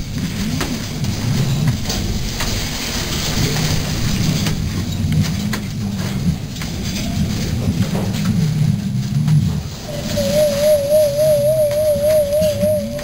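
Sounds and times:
pigeon cooing low: 0:09.9 - 0:13.0.

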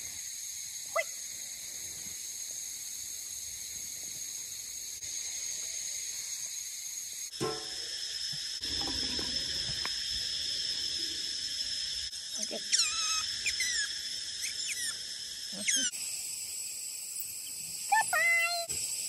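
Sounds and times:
otter squeaking chirps: 0:12.6 - 0:15.9.

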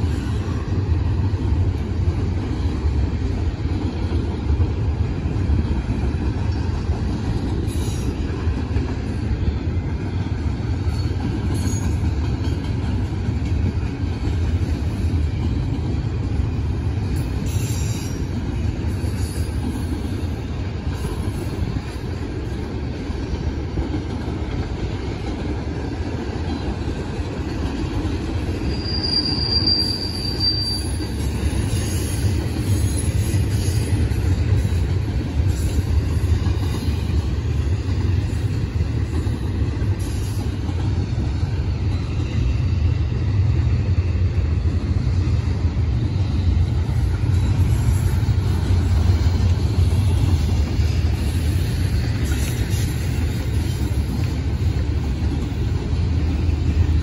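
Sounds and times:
freight train wheels rumbling: 0:00.0 - 0:57.0
high wheel squeal: 0:28.6 - 0:33.8.

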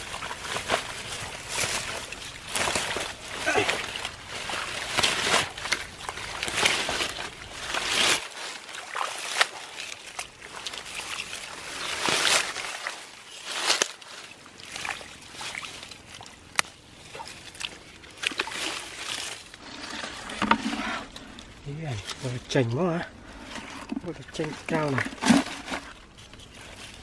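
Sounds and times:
hands splashing in muddy water: 0:00.0 - 0:20.4.

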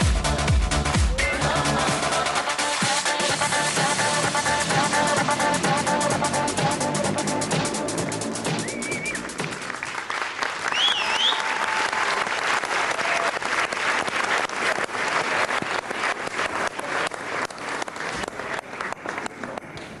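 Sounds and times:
studio audience applauding: 0:08.0 - 0:19.7
high rising and falling whistle: 0:08.6 - 0:09.3, 0:10.7 - 0:11.6.

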